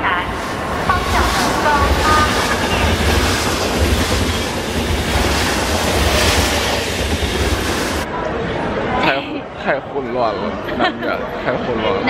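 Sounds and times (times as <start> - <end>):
train rumbling at speed: 0.0 - 8.1.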